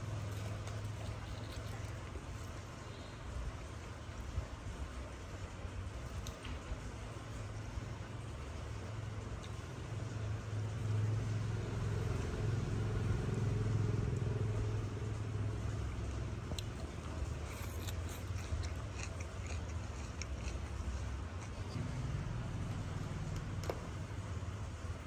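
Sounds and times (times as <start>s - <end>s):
chewing crisp salad leaves: 0.0s - 3.5s, 10.8s - 24.2s.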